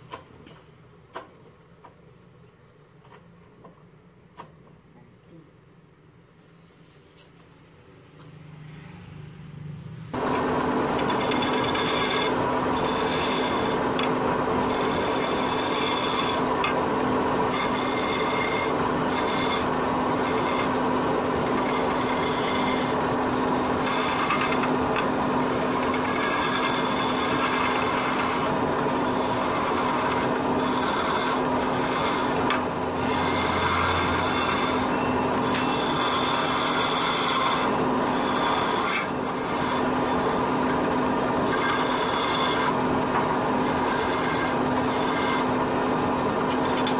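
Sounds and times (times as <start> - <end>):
chisel scraping spinning wood: 10.2 - 46.9
lathe humming: 10.2 - 46.9.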